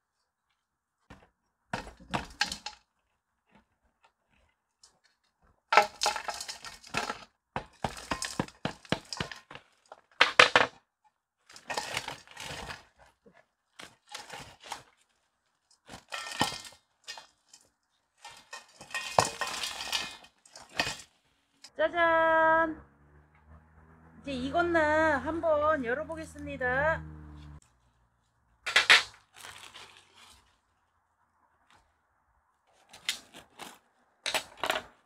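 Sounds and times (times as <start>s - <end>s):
dried clay crumbling into metal bowl: 1.1s - 2.8s, 5.7s - 10.8s, 11.5s - 13.2s, 15.7s - 21.1s
hammer cracking clay crust: 5.8s - 10.8s
foil crinkling: 11.4s - 21.3s, 29.1s - 30.6s.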